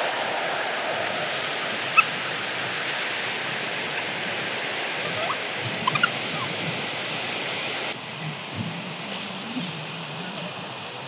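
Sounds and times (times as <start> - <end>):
surf rushing on beach: 0.0 - 11.0.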